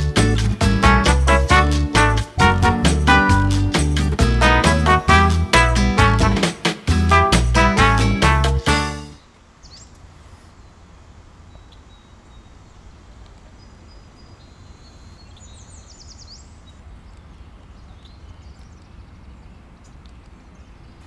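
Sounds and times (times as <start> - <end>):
steady low rumble: 0.0 - 8.3
small birds chirping: 9.2 - 21.0.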